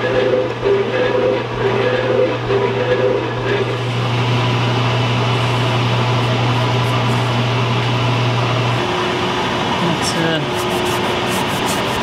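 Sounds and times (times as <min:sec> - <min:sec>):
metal shaper motor hum: 0:00.0 - 0:12.0
rhythmic ram strokes: 0:10.5 - 0:12.0.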